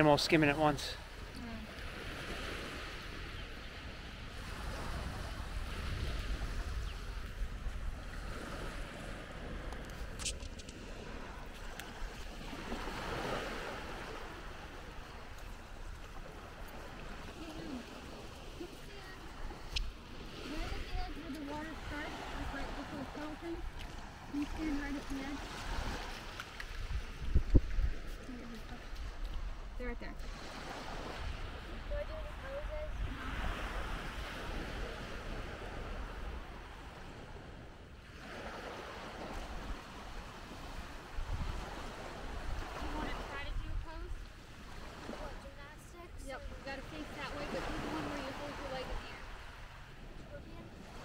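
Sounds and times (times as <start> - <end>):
gentle surf hissing: 0.0 - 37.2, 38.0 - 51.0
wind rumbling on microphone: 1.1 - 51.0.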